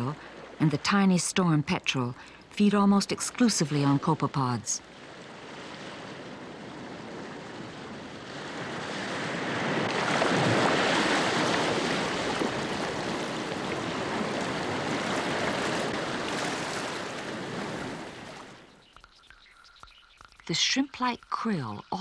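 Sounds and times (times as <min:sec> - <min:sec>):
sea water washing and splashing: 0:04.8 - 0:18.8.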